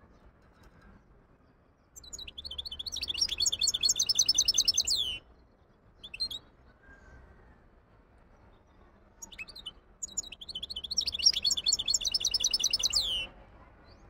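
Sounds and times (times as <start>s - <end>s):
finch twittering song: 2.0s - 5.2s, 6.0s - 6.4s, 9.2s - 13.3s.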